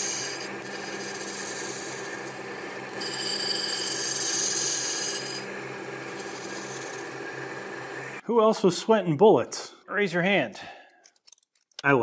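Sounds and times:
grinding wheel on steel: 0.0s - 8.2s
motor hum: 0.0s - 8.2s.

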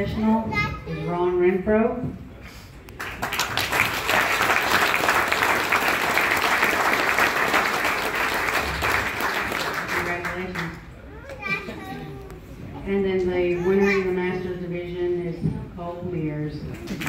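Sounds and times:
audience applauding: 3.0s - 10.8s.

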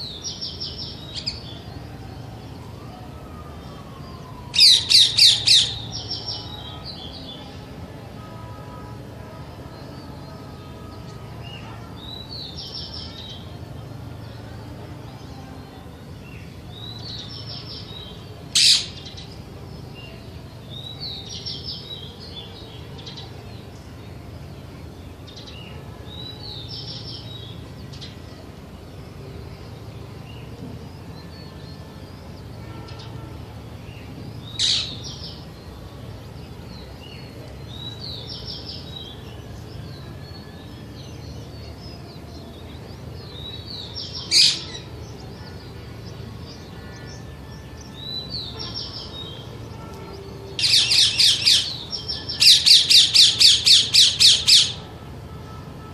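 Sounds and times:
parakeet chirping: 52.4s - 54.8s.

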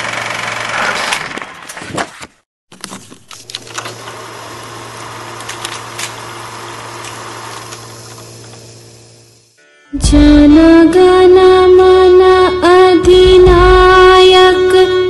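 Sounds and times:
film projector whirring: 0.0s - 1.4s, 3.3s - 9.6s.

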